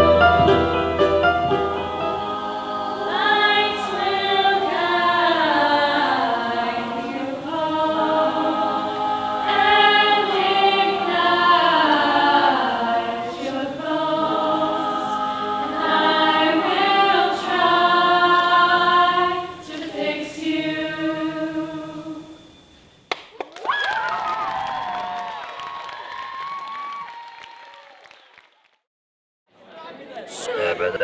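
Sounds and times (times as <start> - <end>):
a cappella choir singing: 0.1 - 22.6.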